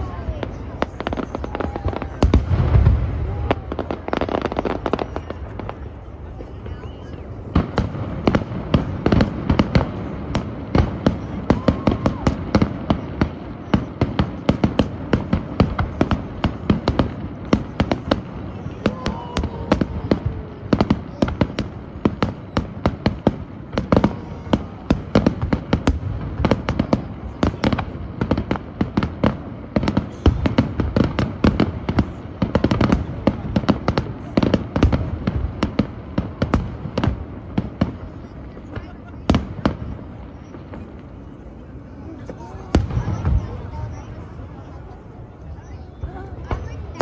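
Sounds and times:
fireworks bangs and crackles: 0.0 - 47.0.

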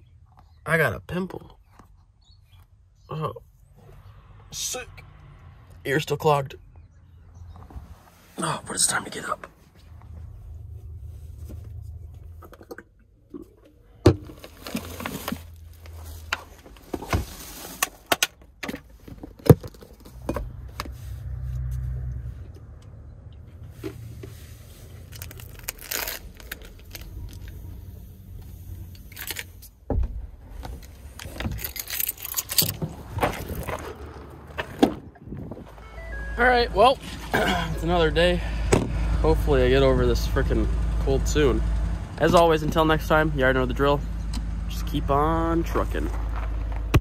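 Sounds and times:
low rumble: 8.6 - 14.7.

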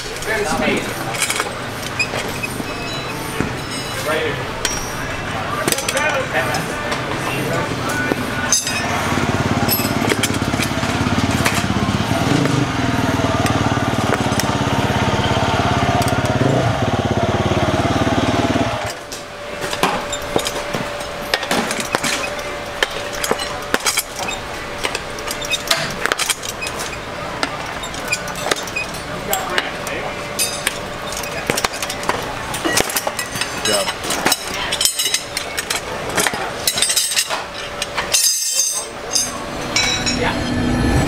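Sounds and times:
tire irons scraping wheel rim: 0.0 - 41.0
motorcycle engine running: 7.0 - 19.6.

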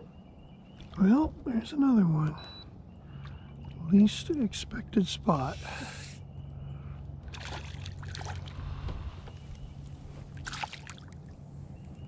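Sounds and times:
fish splashing at water surface: 7.3 - 8.6, 10.4 - 11.2.

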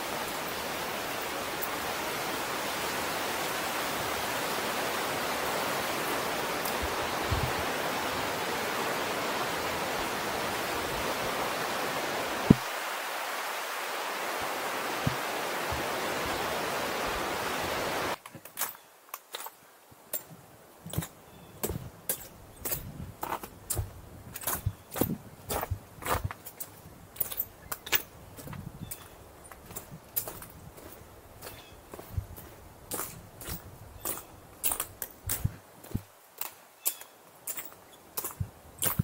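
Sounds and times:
whitewater rapids rushing: 0.0 - 18.2
footsteps on rock: 20.9 - 39.0.

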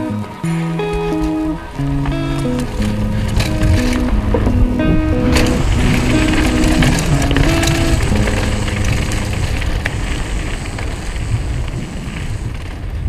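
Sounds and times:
music: 0.0 - 9.7
bike tyres crunching on gravel: 0.0 - 13.0
wind rushing over microphone: 0.0 - 13.0.

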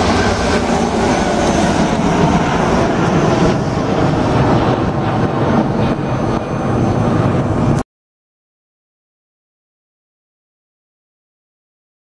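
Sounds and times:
jet engine roar: 0.0 - 7.8.

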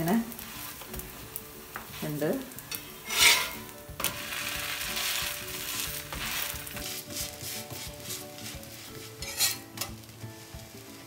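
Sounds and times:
flatbread sizzling on griddle: 0.0 - 11.0
metal spatula scraping pan: 2.7 - 10.1.

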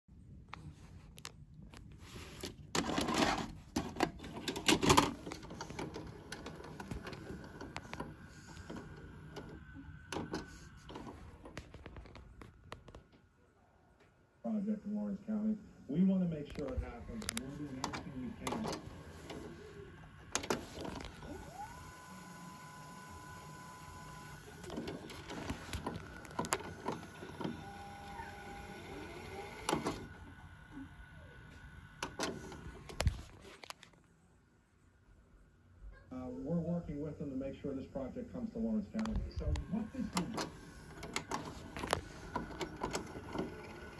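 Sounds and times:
faint steady whine: 0.1 - 43.9
tape transport motor whirring: 2.2 - 12.7, 15.3 - 33.9, 38.6 - 43.9.

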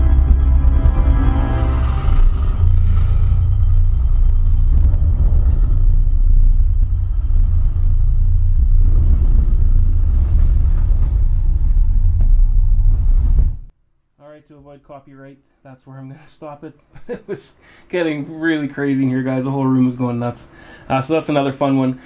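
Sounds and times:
deep subwoofer rumble: 0.0 - 13.7.

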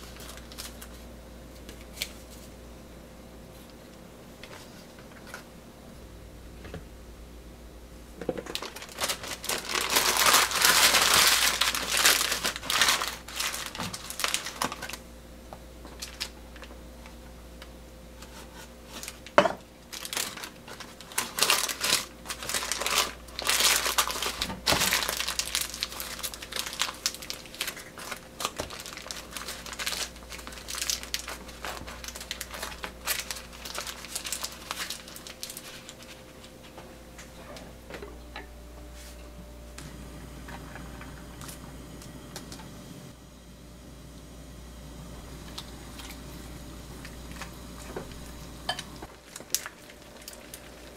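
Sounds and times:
parchment paper crinkling: 0.0 - 2.6, 8.4 - 15.0, 15.8 - 17.1, 18.3 - 36.8, 49.0 - 50.9.

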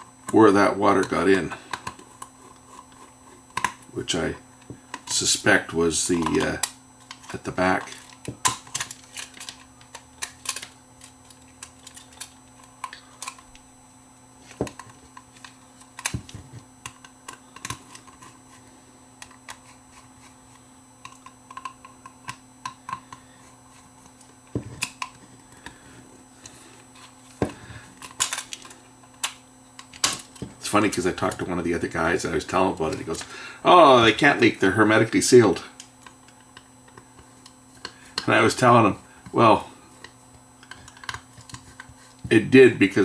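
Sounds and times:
faint steady hum: 0.0 - 43.0
small parts clicking and tapping: 6.0 - 13.7, 19.2 - 23.5, 26.4 - 31.6, 35.5 - 42.4.

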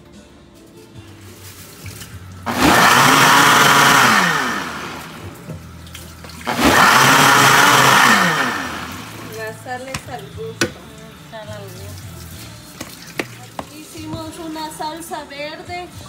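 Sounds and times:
blender motor spinning down: 2.4 - 5.6, 6.4 - 9.6
blender running: 2.4 - 9.7.

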